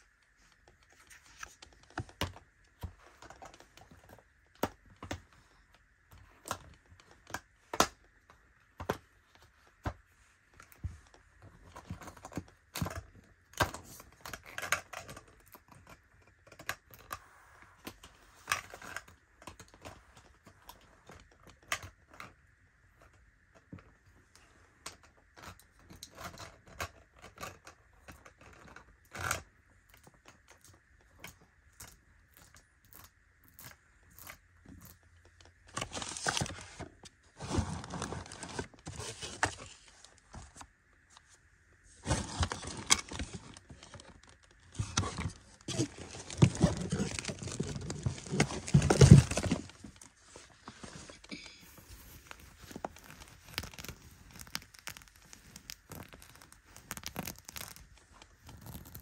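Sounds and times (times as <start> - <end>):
scratching and rustling: 32.3 - 59.0.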